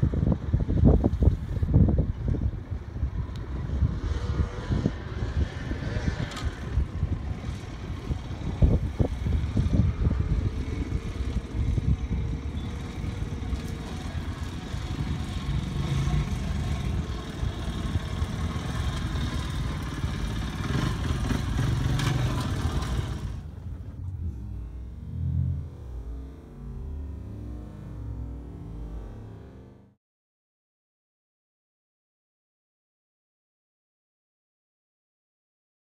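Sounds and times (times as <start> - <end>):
motorcycle engine revving: 3.4 - 30.0.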